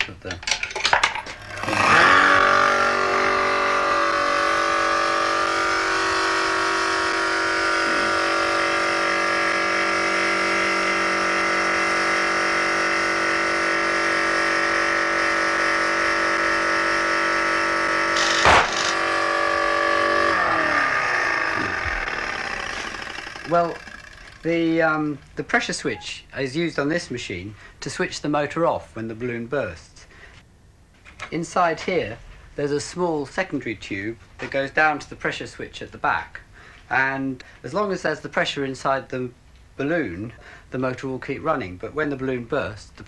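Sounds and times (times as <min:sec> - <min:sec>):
electric motor running: 0:01.3 - 0:25.8
balloon bursting: 0:18.2 - 0:19.3.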